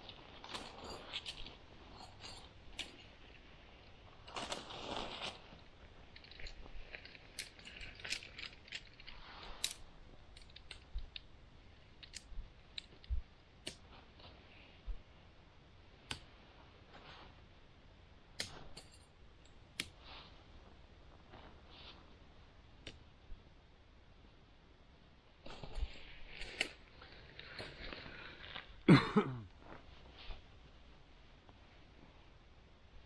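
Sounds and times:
fabric rustling: 0.0 - 15.5, 16.2 - 17.6, 20.0 - 22.5, 25.4 - 28.9, 29.6 - 30.9
tent poles and clips clicking: 0.1 - 14.4, 16.0 - 16.3, 18.4 - 20.1, 25.5 - 28.7.

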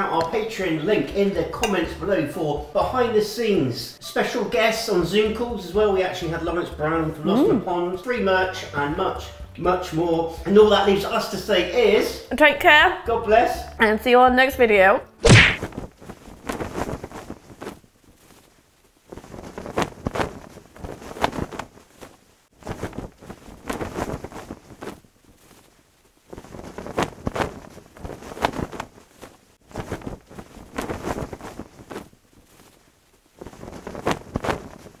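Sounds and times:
cloth flag flapping: 15.2 - 35.0.

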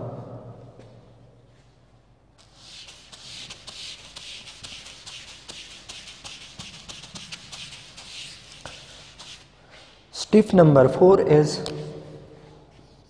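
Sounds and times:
eraser swishing on whiteboard: 2.4 - 9.9.

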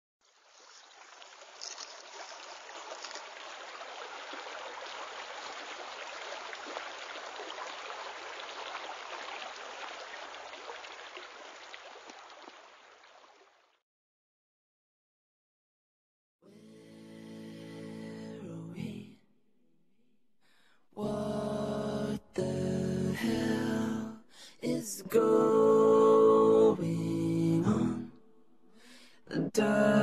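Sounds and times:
running water splashing: 0.2 - 13.8.

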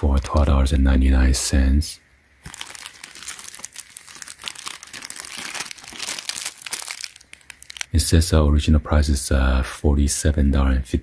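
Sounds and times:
plastic bag crinkling: 0.0 - 0.7, 2.4 - 8.0.

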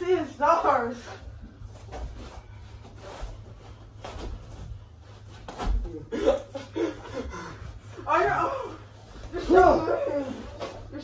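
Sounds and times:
feet shuffling and thudding on floor: 1.0 - 6.1.

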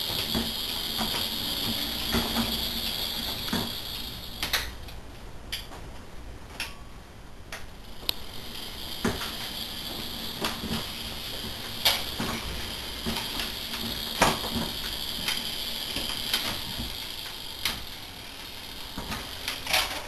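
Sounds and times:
electric motor whine: 0.0 - 4.6, 8.0 - 19.7
wheels clicking on wooden track: 0.0 - 4.7, 8.0 - 20.0.

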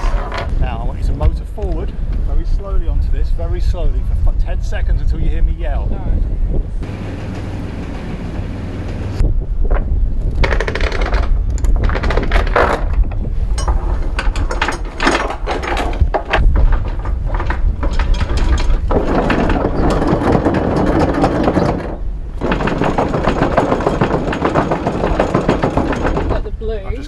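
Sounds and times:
anchor chain clanking: 10.4 - 27.0.

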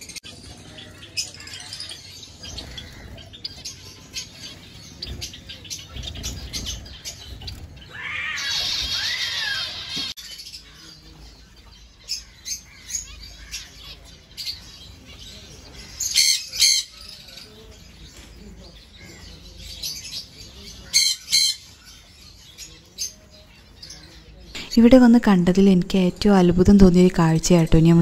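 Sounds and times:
finches chirping: 0.0 - 28.0
sharp bird calls: 0.0 - 28.0.

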